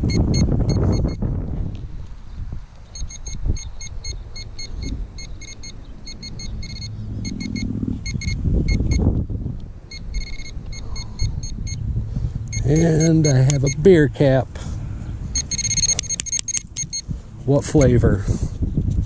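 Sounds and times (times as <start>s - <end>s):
metal detector pinpointer beeping: 0.0s - 1.2s, 2.9s - 9.2s, 9.9s - 11.8s, 12.5s - 14.0s, 15.3s - 18.0s
wind rumbling on microphone: 0.0s - 19.0s.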